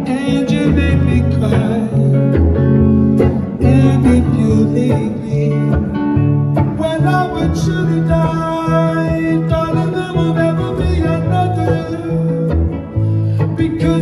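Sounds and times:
acoustic guitar strumming: 0.0s - 14.0s
person singing: 0.0s - 14.0s.

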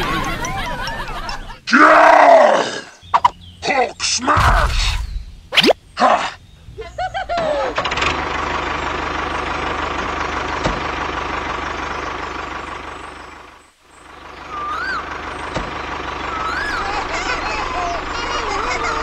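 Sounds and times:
diesel tractor engine chugging: 0.0s - 1.6s, 7.0s - 19.0s
short rising and falling chirps: 4.4s - 6.0s.

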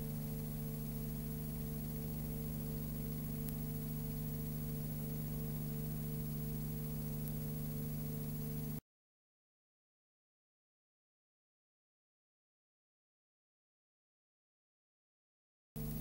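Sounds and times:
low hum with hiss: 0.0s - 8.8s, 15.8s - 16.0s.

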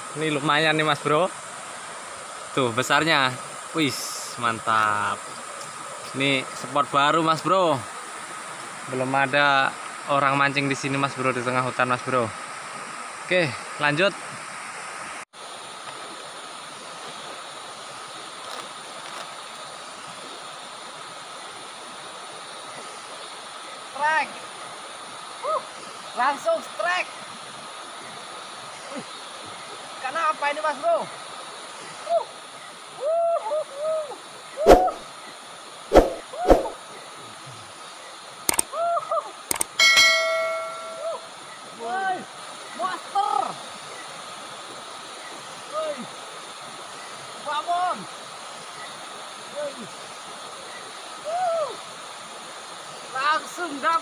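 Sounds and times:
rising and falling hooting calls: 33.0s - 35.0s
sharp clicks: 38.5s - 38.7s, 39.5s - 39.8s
fast-flowing river rushing: 39.7s - 54.0s
faint high tone: 39.8s - 41.3s.

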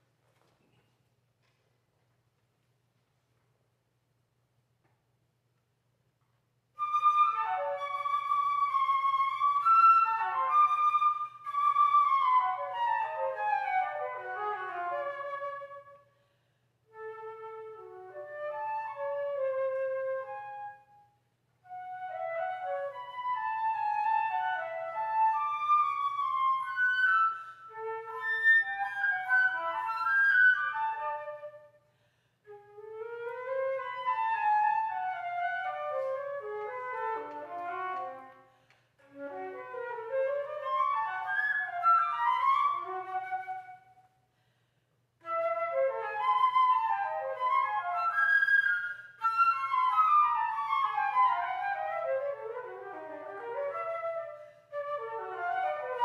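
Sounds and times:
solo flute playing: 6.8s - 16.1s, 16.9s - 31.8s, 32.5s - 44.1s, 45.2s - 56.0s.

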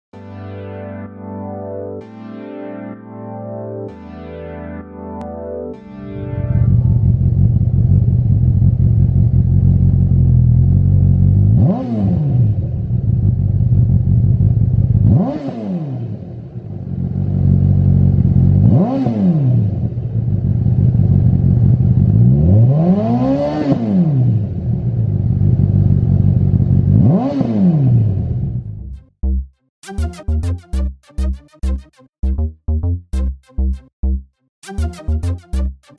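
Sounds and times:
motorcycle engine idling: 6.6s - 11.5s, 12.8s - 15.1s, 20.2s - 22.2s, 25.0s - 27.0s
engine revving: 10.6s - 13.3s, 14.9s - 16.5s, 18.4s - 20.4s, 21.8s - 24.8s, 26.7s - 28.7s.

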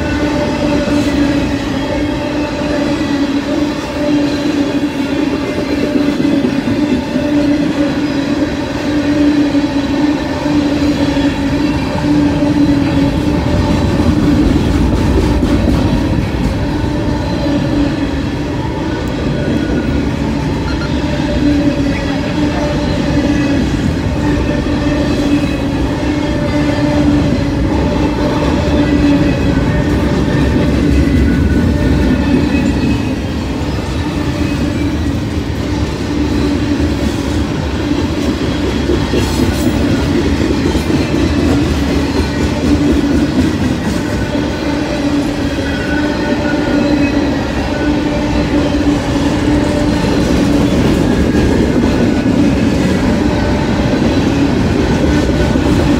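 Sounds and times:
freight train wheels rumbling: 0.0s - 55.9s.

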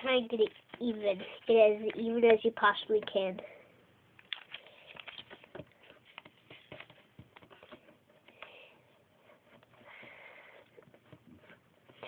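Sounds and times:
paper rustling: 4.2s - 8.6s.

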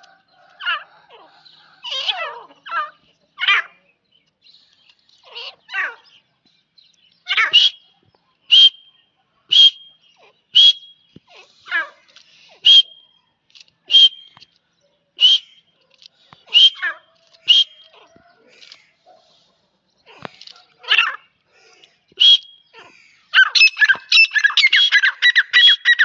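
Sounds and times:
sharp high bird call: 7.3s - 7.9s, 8.5s - 11.1s, 12.6s - 13.2s, 16.5s - 18.0s
lower falling wavering bird call: 12.6s - 13.2s, 16.5s - 18.0s.

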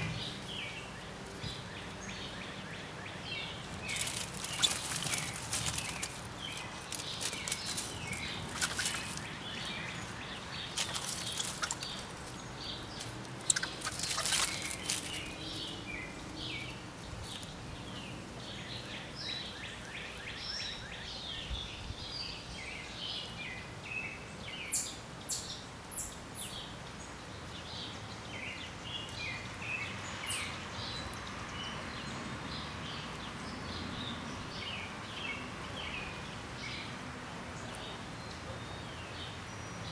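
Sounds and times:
crackling rustle: 0.0s - 20.6s
songbirds chirping and singing: 0.0s - 39.9s.

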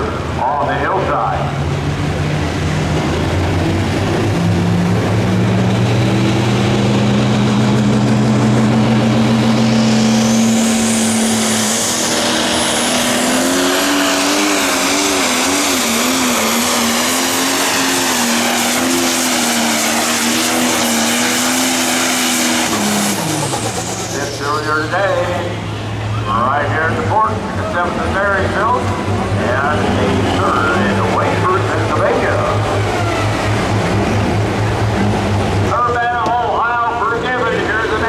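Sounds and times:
diesel tractor engine at full throttle: 0.0s - 38.0s
high turbo whistle: 9.3s - 13.3s.

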